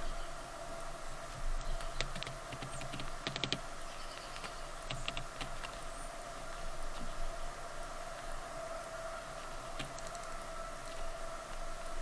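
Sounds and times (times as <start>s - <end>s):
woodpecker pecking taps: 1.7s - 5.8s, 9.7s - 10.4s.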